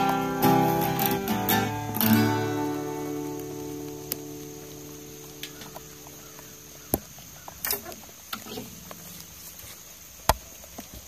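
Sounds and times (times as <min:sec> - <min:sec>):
acoustic guitar chord: 0:00.0 - 0:06.2.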